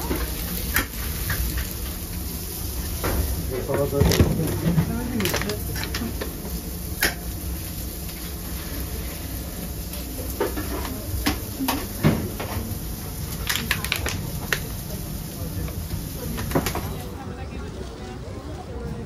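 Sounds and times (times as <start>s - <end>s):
utensils clicking on steel trays: 3.6s - 6.4s, 13.3s - 14.7s.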